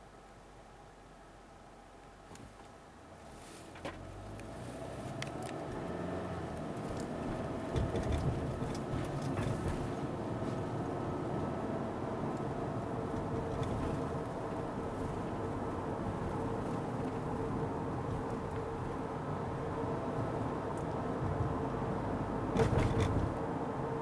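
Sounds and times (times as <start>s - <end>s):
car engine and road noise: 0.0s - 24.0s
small clicks and rattles: 6.8s - 9.7s.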